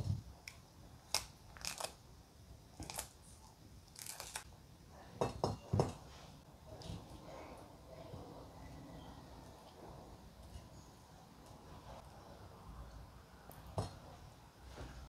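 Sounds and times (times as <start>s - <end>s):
avocado skin peeling: 0.4s - 2.0s, 3.9s - 4.5s.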